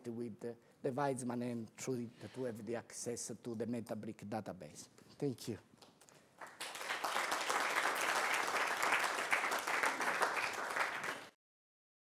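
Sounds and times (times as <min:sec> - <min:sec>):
audience applauding: 0:06.4 - 0:11.4.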